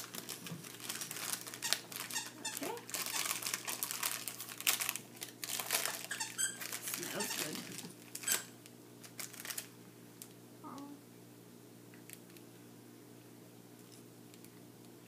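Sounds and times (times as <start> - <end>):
foil wrapper crinkling: 0.0 - 9.8.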